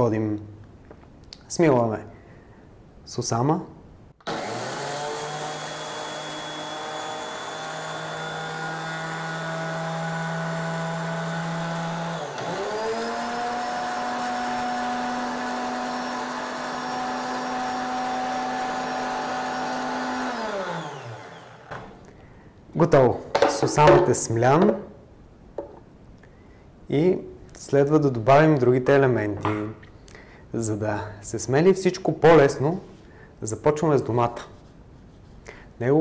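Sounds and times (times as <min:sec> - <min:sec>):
blender motor grinding seeds: 0:04.2 - 0:21.7.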